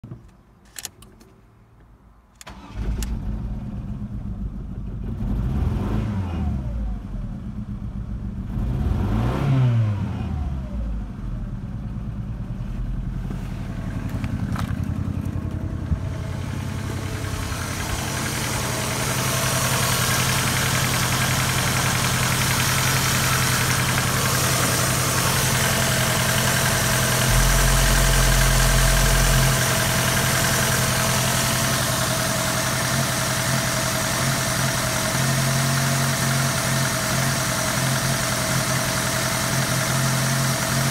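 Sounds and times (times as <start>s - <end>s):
car engine idling: 2.4s - 5.2s, 6.9s - 8.6s, 10.7s - 40.9s
car engine revving: 5.1s - 6.8s, 8.4s - 11.2s, 11.8s - 39.5s.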